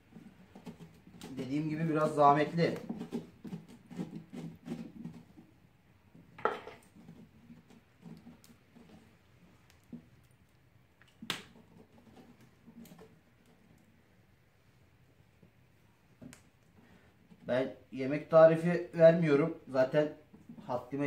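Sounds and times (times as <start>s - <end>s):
hand scraping pumpkin flesh: 0.0s - 5.6s.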